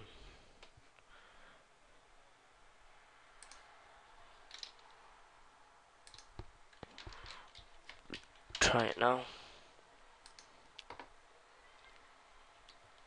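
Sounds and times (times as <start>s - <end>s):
keyboard and mouse clicks: 3.4s - 3.7s, 4.5s - 5.0s, 6.0s - 8.8s, 10.2s - 11.1s.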